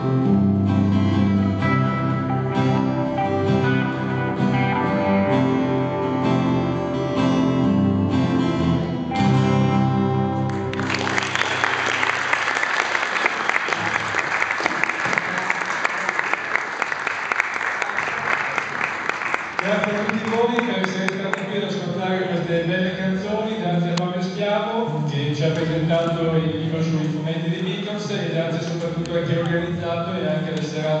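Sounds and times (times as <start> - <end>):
live band with acoustic guitar: 0.0 - 16.7, 17.8 - 31.0
audience applause: 10.5 - 21.6.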